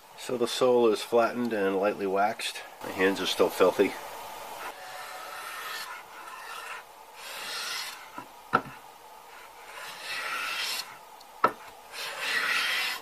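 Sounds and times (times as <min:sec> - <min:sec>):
hand plane hissing strokes on wood: 0:04.6 - 0:08.2, 0:09.3 - 0:11.0, 0:11.6 - 0:13.0.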